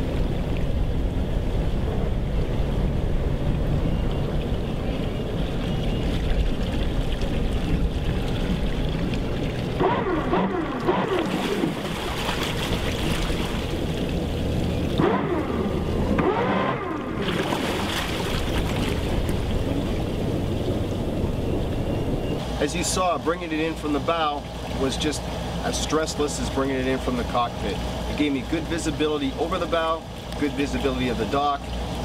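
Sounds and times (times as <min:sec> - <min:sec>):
wavering gliding whine: 0:00.0 - 0:24.1
boat engines humming: 0:00.0 - 0:32.0.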